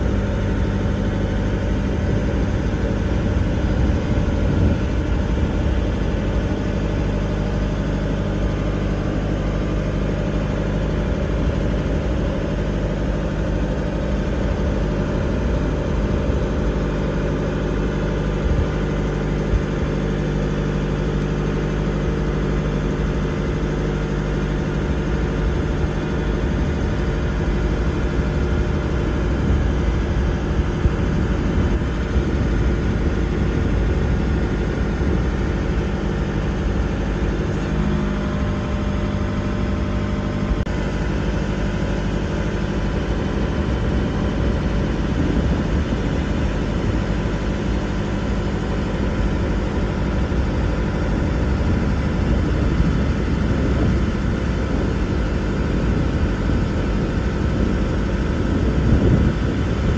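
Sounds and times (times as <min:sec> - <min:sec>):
engine running steadily: 0:00.0 - 0:59.9.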